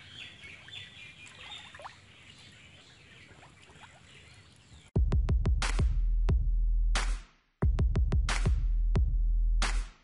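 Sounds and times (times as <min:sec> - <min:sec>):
small birds chirping: 0:00.0 - 0:05.0.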